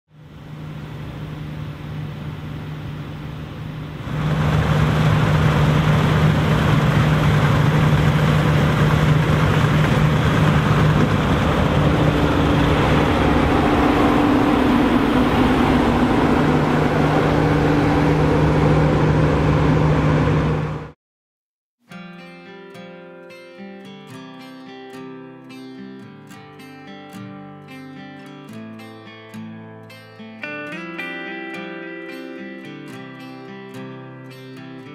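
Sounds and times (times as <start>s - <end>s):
combine harvester engines droning: 0.2s - 20.9s
higher hum: 0.2s - 20.9s.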